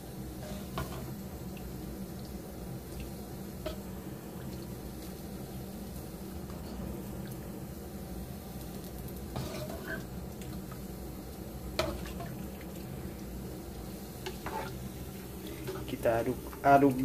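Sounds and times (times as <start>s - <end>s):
steady low hum: 0.0s - 17.0s
liquid dripping: 1.4s - 3.3s.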